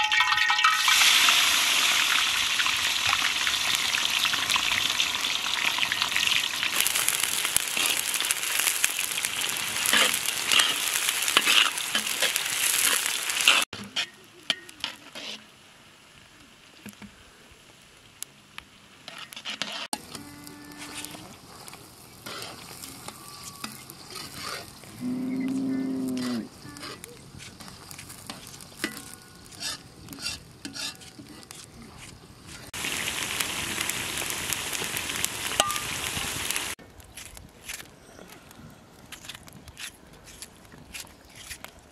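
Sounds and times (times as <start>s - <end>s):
onions sizzling in a pot: 0.0s - 37.3s
metal ladle stirring: 26.2s - 32.2s.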